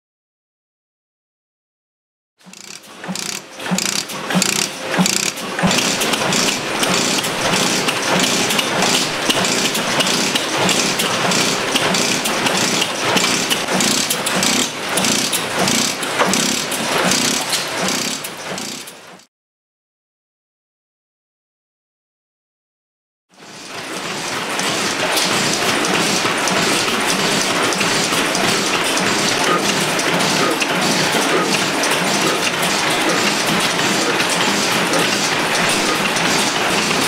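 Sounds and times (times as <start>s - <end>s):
stationary engine running: 2.4s - 19.3s, 23.4s - 37.0s.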